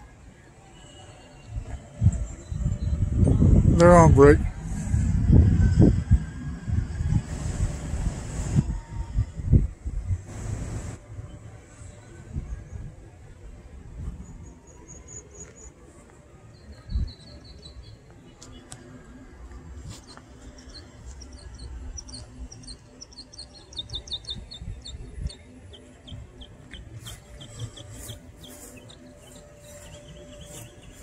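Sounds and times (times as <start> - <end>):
wind rumble on microphone: 1.4 - 15.0, 16.6 - 31.0
small birds chirping: 20.0 - 31.0.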